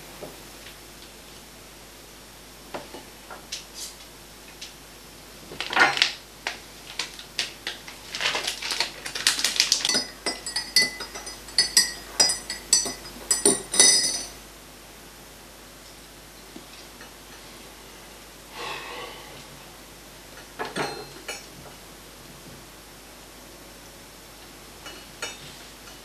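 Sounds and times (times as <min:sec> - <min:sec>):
metal clinking on china: 0:09.8 - 0:14.4.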